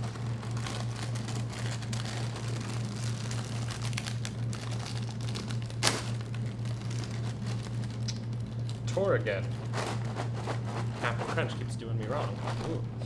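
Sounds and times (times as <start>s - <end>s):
bag seal popping: 0.0s - 8.9s
plastic bag crinkling: 0.0s - 11.0s.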